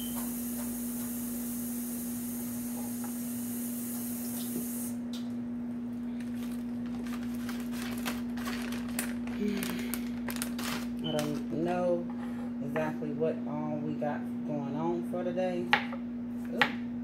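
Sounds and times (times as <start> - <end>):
tap water running: 0.0 - 5.2
steady low hum: 0.0 - 17.0.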